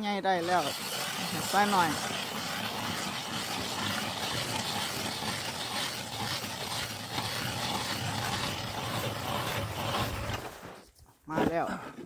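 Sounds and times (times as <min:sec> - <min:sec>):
ice auger scraping through ice: 0:00.0 - 0:12.0.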